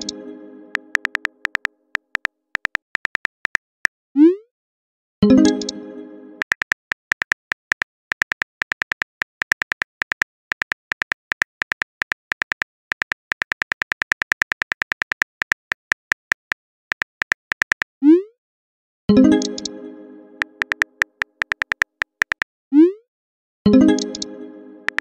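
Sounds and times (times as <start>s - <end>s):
phone keyboard key clicks: 0.9s - 3.8s, 6.4s - 17.9s, 20.5s - 22.5s.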